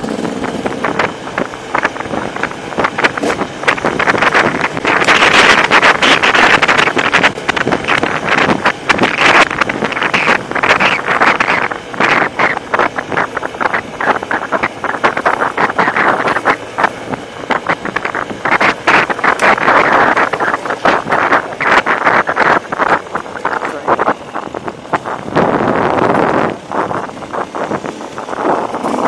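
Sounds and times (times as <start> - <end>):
motorcycle engine revving: 0.0 - 29.0
sharp knocks from bumpy ride: 0.0 - 29.0.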